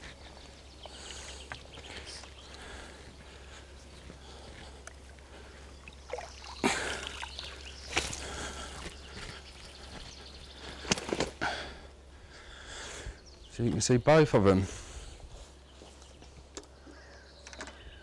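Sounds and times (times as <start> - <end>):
faint outdoor background: 0.0 - 18.0
water splashing: 5.8 - 8.8.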